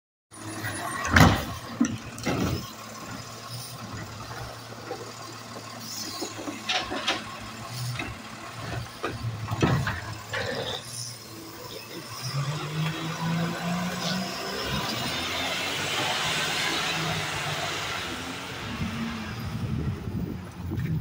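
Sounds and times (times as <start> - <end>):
truck idling hum: 0.4 - 12.3
knocks and bangs of cart: 0.9 - 3.3, 6.2 - 10.3.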